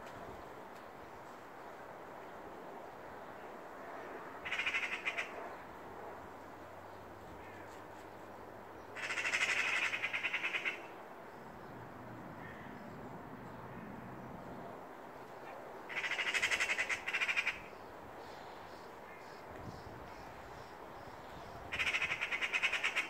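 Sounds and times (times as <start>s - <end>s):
magpies rattling alarm chatter: 4.4s - 5.3s, 9.0s - 10.9s, 15.9s - 17.7s, 21.7s - 23.0s.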